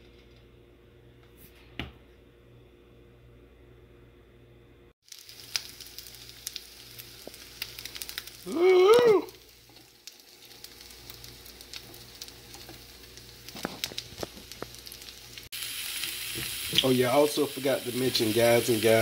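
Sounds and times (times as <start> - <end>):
fish sizzling in a pan: 5.0 - 19.0.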